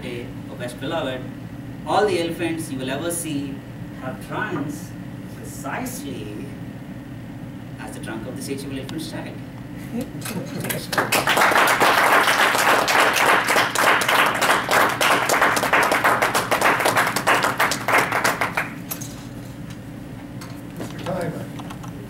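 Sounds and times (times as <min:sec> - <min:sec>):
audience applauding: 0:10.8 - 0:18.8.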